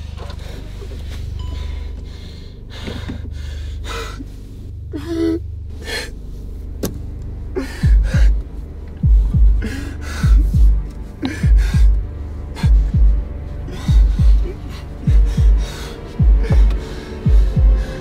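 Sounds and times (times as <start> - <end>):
man gasping and breathing hard: 7.5 - 18.0.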